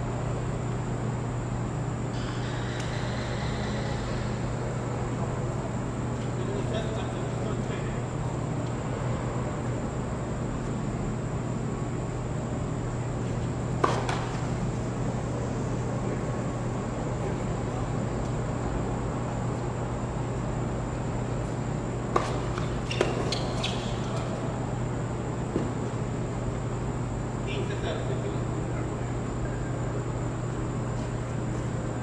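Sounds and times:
steady low hum: 0.0 - 32.0
rackets hitting tennis ball: 13.7 - 14.6, 22.1 - 24.4.

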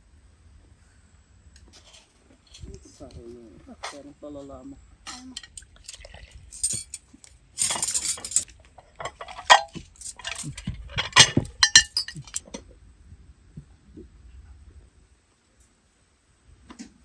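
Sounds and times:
cutlery clinking on plates: 6.6 - 7.0, 7.6 - 12.4.

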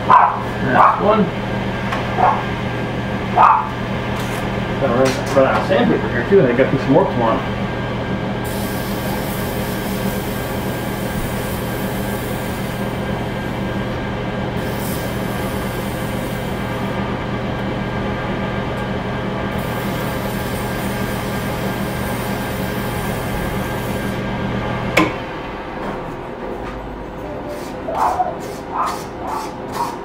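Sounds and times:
sandpaper hissing on spinning wood: 8.5 - 13.0, 19.6 - 24.2, 27.5 - 30.0.

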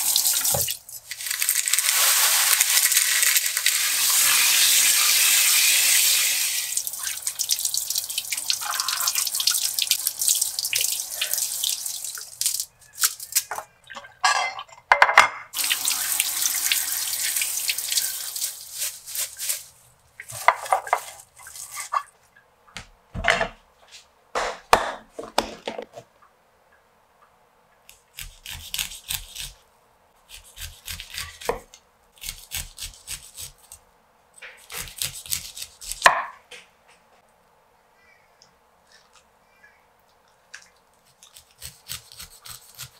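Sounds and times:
water splashing in sink: 6.7 - 14.0, 15.6 - 22.1.

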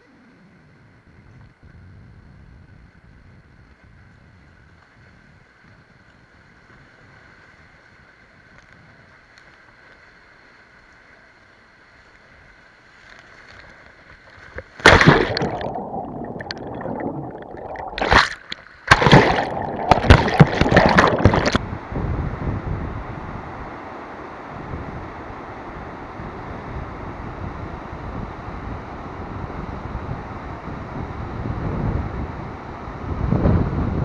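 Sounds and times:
rapids rushing: 14.8 - 21.6
waves crashing and gurgling: 14.8 - 21.9.

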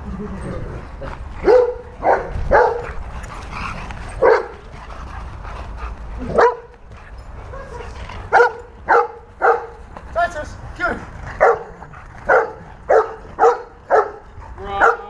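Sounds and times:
dog barking: 1.4 - 2.8, 4.2 - 4.6, 6.3 - 6.7, 8.3 - 9.8, 11.4 - 15.0.

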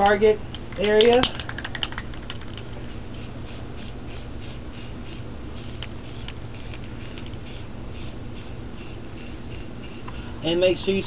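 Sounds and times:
spray paint can hissing: 2.9 - 10.4.

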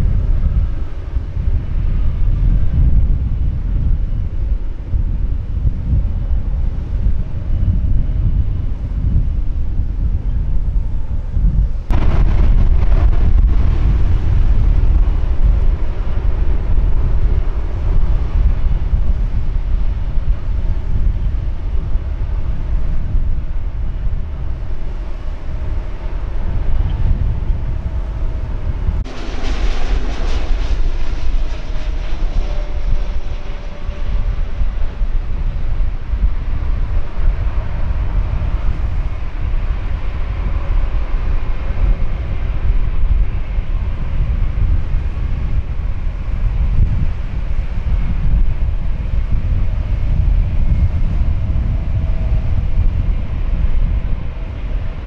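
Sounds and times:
jet engines rumbling: 0.0 - 55.0
wind buffeting microphone: 0.0 - 55.0
loud rush of noise: 11.9 - 55.0.

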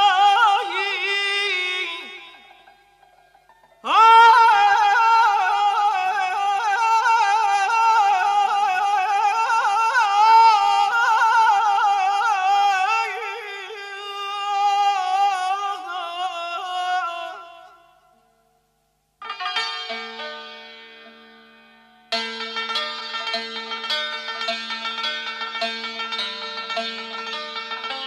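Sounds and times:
man singing unaccompanied: 0.0 - 2.8, 3.8 - 18.2.

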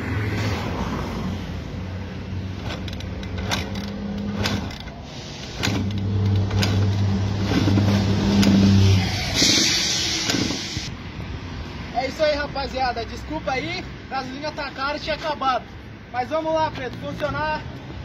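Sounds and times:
dirt bike kick-starter knocking: 2.6 - 5.0.

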